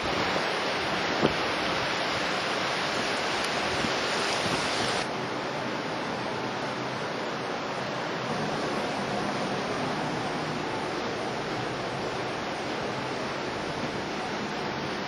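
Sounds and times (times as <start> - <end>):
sea rushing along ship hull: 0.0 - 15.0
wind across deck: 0.0 - 15.0.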